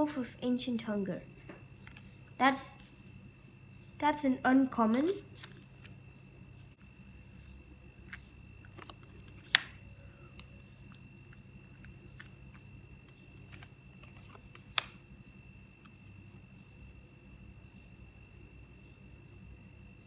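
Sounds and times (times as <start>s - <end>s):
cards shuffling and flicking: 13.4s - 15.0s
sharp card snaps: 13.5s - 15.0s.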